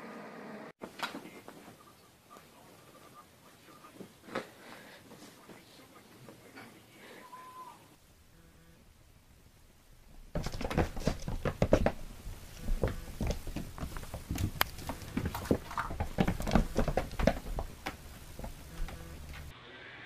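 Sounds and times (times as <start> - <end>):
cats' paws thumping and scrabbling: 10.1 - 19.5.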